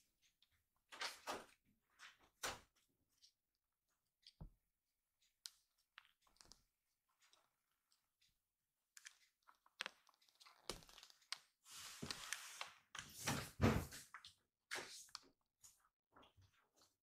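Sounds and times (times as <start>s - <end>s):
kitten rustling on floor mat: 11.6s - 13.5s.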